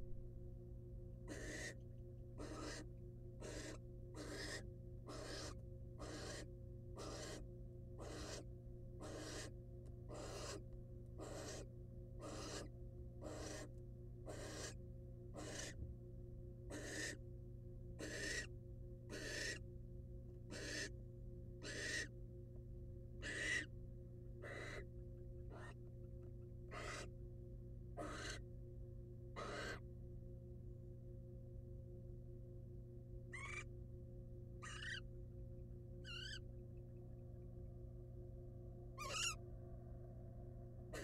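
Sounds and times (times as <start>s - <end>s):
barn owl hissing snore calls: 1.3s - 1.8s, 2.4s - 7.4s, 8.0s - 9.5s, 10.1s - 10.6s, 11.2s - 13.7s, 14.3s - 14.8s, 15.4s - 15.8s, 16.7s - 17.2s, 18.0s - 18.5s, 19.1s - 19.6s, 20.5s - 20.9s, 21.6s - 22.1s, 23.2s - 23.7s, 24.4s - 24.8s, 26.7s - 27.1s, 28.0s - 28.4s, 29.4s - 29.8s, 39.0s - 39.4s.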